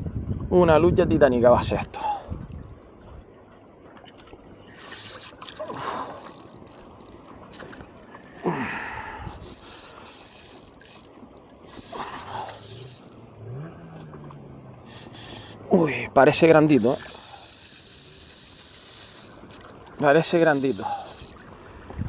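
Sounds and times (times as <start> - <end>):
fishing reel ratcheting: 4.7 - 7.8, 9.2 - 13.2, 16.9 - 21.6.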